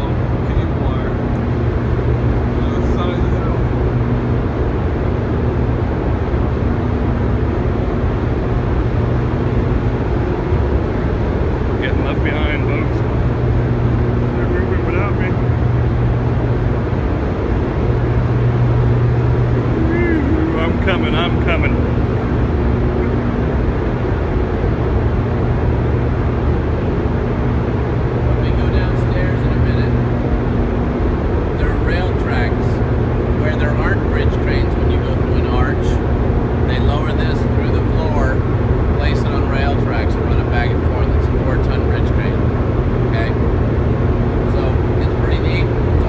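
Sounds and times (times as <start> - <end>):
low electrical hum: 0.0 - 46.0
machinery rushing noise: 0.0 - 46.0.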